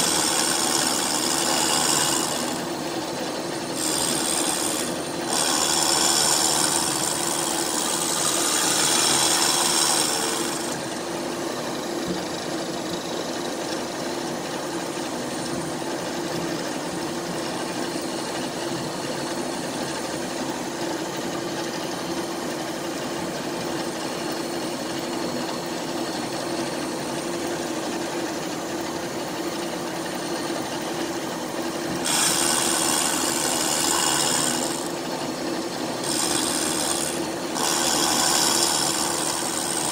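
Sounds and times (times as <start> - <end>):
burr cutting metal: 0.0 - 2.8, 3.6 - 11.1, 31.9 - 35.0, 36.0 - 39.9
rotary tool motor humming: 0.0 - 22.5, 23.2 - 39.9.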